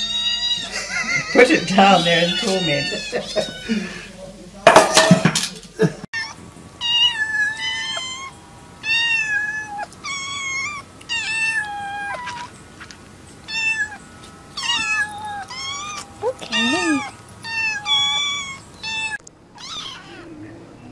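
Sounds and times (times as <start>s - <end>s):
kittens mewing: 0.0s - 4.1s, 6.2s - 20.5s.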